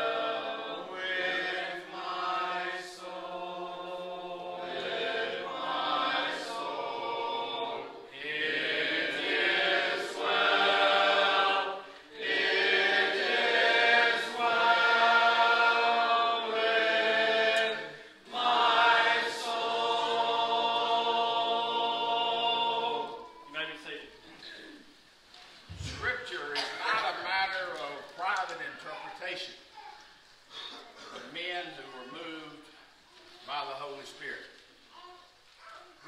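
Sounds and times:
congregation singing a hymn: 0.0s - 24.8s, 25.7s - 29.6s.

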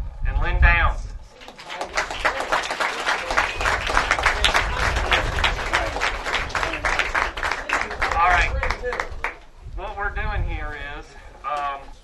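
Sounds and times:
wind rumbling on microphone: 0.0s - 12.0s
crowd applauding: 1.4s - 9.5s.

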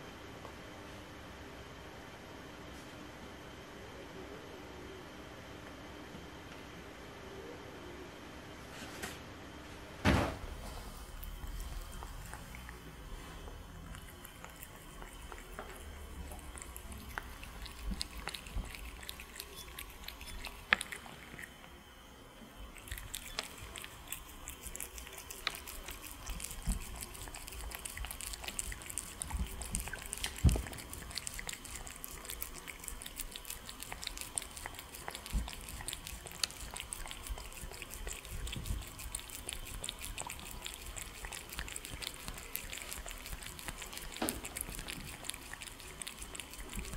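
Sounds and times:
cats chewing and licking: 10.4s - 46.9s.

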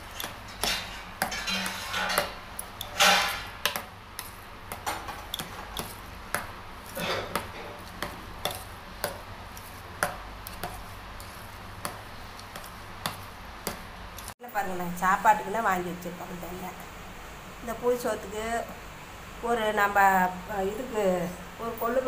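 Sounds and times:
scrapes against metal pot: 0.0s - 3.6s
rice mixed by hand in metal pot: 0.0s - 14.4s.

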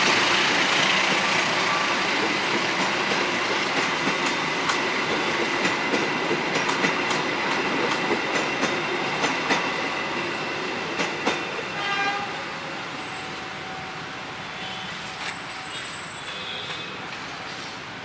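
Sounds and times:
train wheels clicking over rail joints: 2.2s - 9.8s
train wheels squealing: 12.9s - 18.0s.

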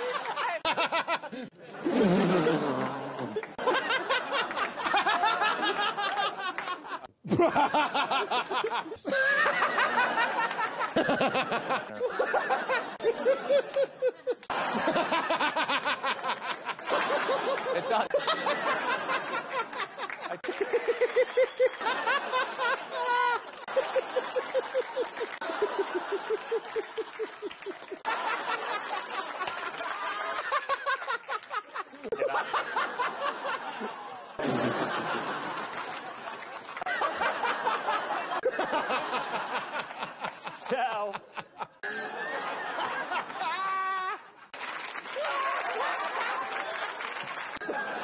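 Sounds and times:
man laughing hard: 34.4s - 36.0s.

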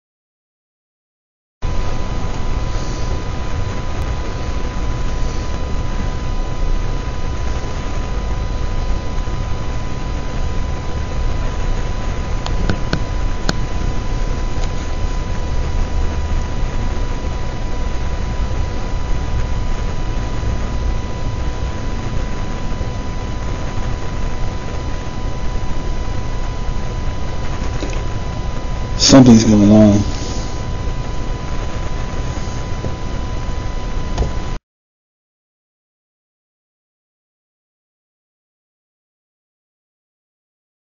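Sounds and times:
microphone hiss and rumble: 1.6s - 34.6s
thin steady whine: 1.6s - 34.6s.

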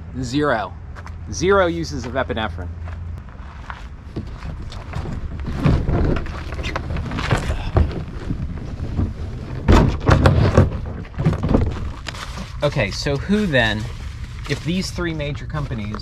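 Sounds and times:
kayak knocking and rubbing: 4.1s - 14.8s.

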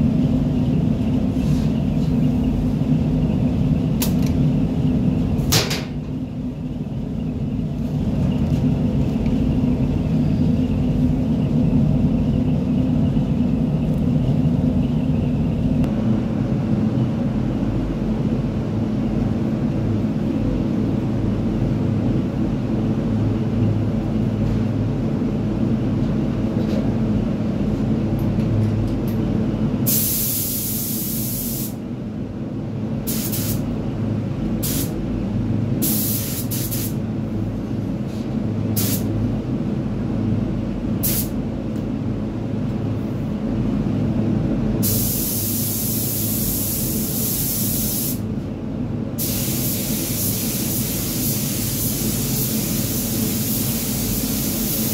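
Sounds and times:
fans rumbling: 0.0s - 54.9s
paint spray gun hissing: 29.9s - 31.8s, 33.1s - 33.6s, 34.6s - 34.9s, 35.8s - 37.0s, 38.8s - 39.1s, 41.0s - 41.3s, 44.8s - 48.2s, 49.2s - 54.9s.

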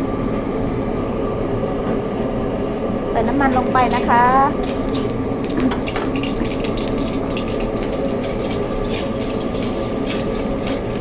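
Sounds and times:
gas burner rushing hum: 0.0s - 11.0s
cooking oil crackling: 3.2s - 11.0s.

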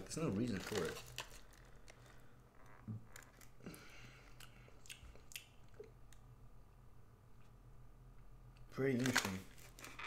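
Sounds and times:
low steady hum: 0.0s - 10.0s
person chewing: 3.3s - 6.3s.

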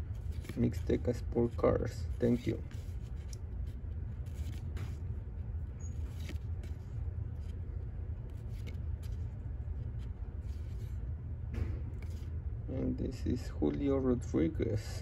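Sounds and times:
low background rumble: 0.0s - 15.0s
cards sliding off a stack: 5.8s - 7.6s, 8.3s - 9.2s.

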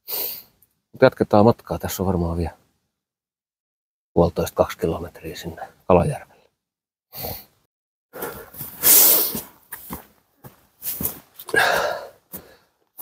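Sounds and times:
footsteps crunching in snow: 8.2s - 11.5s.

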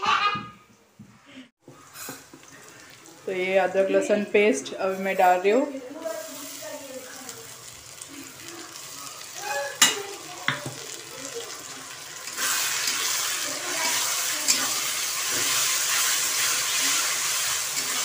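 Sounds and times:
paste sizzling in oil: 1.7s - 18.0s.

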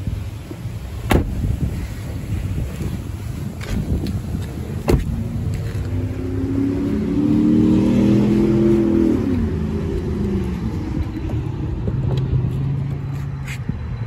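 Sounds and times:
steady low rumble: 0.0s - 14.0s
car engine accelerating past: 5.7s - 11.2s.

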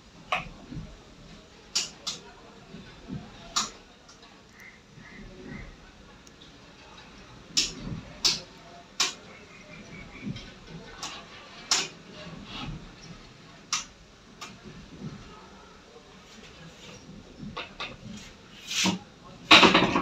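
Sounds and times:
sharp plastic clicks: 1.7s - 2.3s.

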